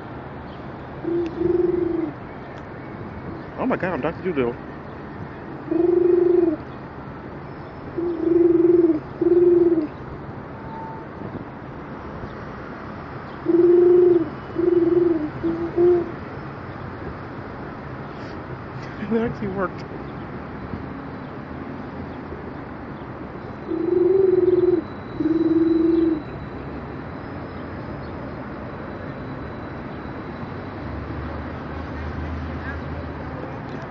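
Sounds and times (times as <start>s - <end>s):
city street background noise: 0.0s - 33.9s
pigeon cooing: 1.0s - 2.2s, 5.7s - 6.6s, 8.0s - 9.9s, 13.4s - 16.2s, 23.6s - 26.2s
person imitating pigeon coos: 5.7s - 6.6s, 13.6s - 16.1s.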